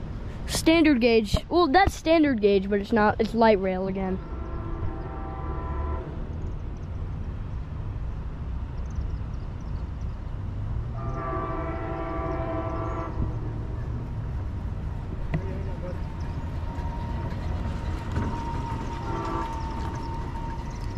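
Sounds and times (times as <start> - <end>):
low steady rumble: 0.0 - 20.9
distant train air horn: 4.2 - 6.2, 11.0 - 13.6, 16.7 - 20.9.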